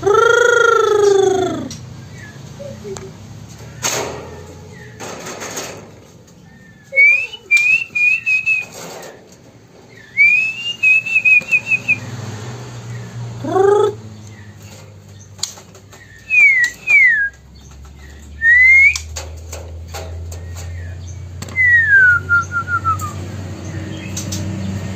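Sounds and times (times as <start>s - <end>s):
bird whistled phrases: 6.6s - 8.8s, 10.0s - 12.0s, 16.1s - 17.4s, 18.4s - 19.1s, 21.5s - 23.2s.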